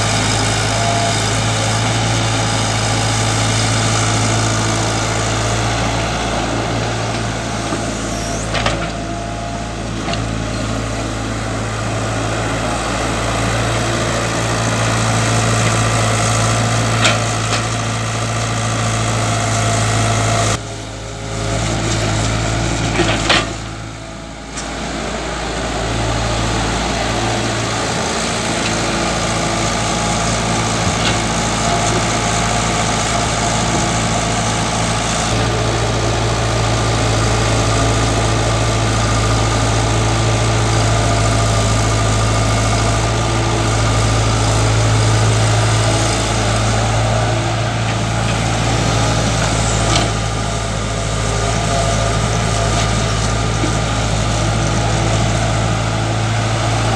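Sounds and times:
excavator diesel engine running: 0.0 - 56.9.

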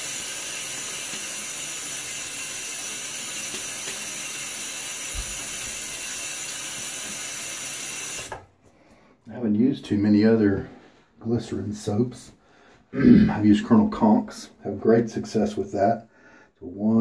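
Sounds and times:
tap running into sink: 3.4 - 7.3.

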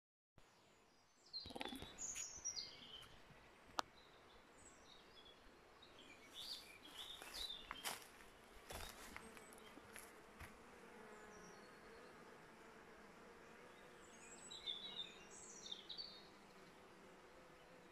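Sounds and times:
songbirds chirping: 0.4 - 17.9
bee swarm buzzing: 8.6 - 17.9.

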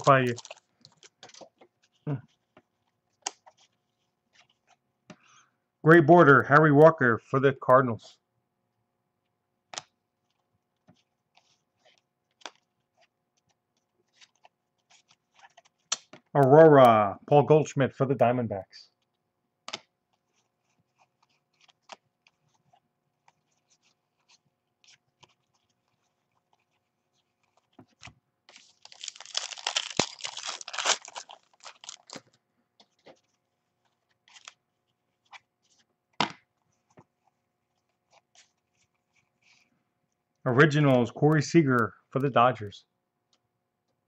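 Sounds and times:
foil wrapper tearing and crinkling: 0.0 - 0.7, 28.5 - 32.3.

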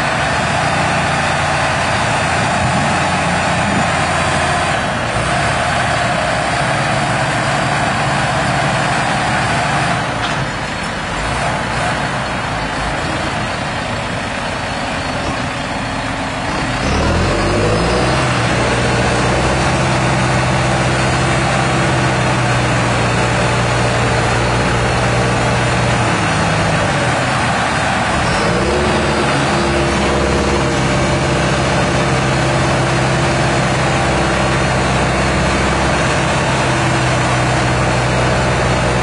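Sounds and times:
engine revving under load: 0.0 - 10.5, 15.2 - 39.0
tractor diesel engines running: 0.0 - 39.0.

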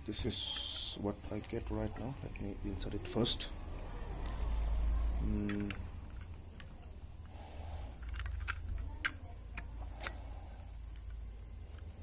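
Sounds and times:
small metallic clicks and taps: 8.0 - 11.9.

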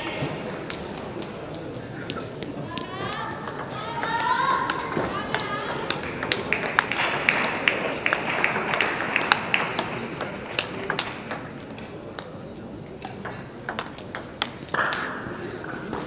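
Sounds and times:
table tennis balls clicking: 3.3 - 15.1
clicks from neighbouring tables: 3.5 - 12.4.

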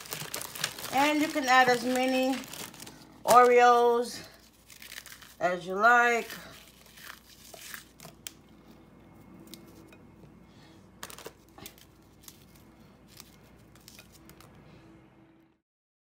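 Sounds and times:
cookies breaking by hand: 0.0 - 3.5, 4.5 - 5.4, 6.2 - 8.4.

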